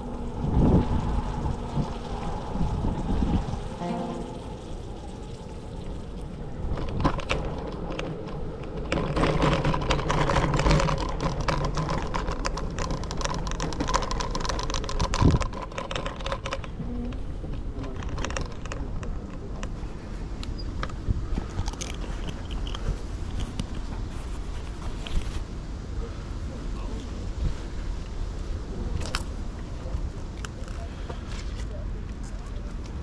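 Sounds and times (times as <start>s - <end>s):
steady hum: 0.0s - 8.6s
scooter wheels rattling: 4.4s - 25.4s.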